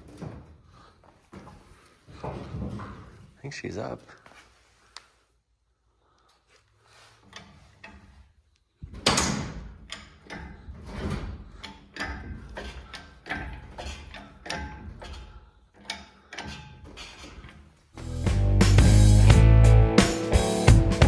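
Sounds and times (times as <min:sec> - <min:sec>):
engine hoist pump clunks: 0:08.9 - 0:17.7.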